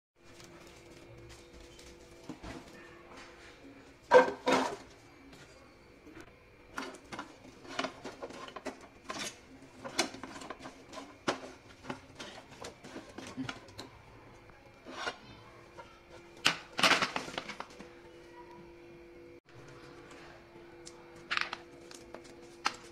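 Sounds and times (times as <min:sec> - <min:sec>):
pods clattering in a frying pan: 0:04.0 - 0:04.9, 0:06.7 - 0:13.9, 0:14.8 - 0:17.8
spatula stirring: 0:06.7 - 0:14.0, 0:14.7 - 0:16.4.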